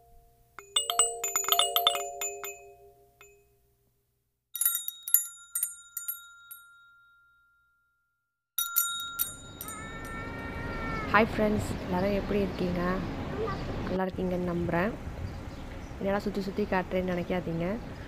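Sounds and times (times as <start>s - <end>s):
bright tinkling chimes: 0.6s - 3.5s, 8.6s - 10.4s
faint outdoor background noise: 8.6s - 18.0s.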